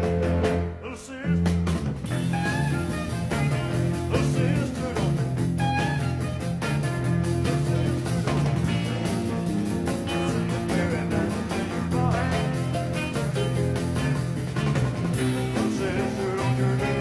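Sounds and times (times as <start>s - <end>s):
rock and roll band playing: 0.0s - 17.0s
person singing: 2.4s - 6.2s, 6.8s - 13.6s, 15.2s - 17.0s.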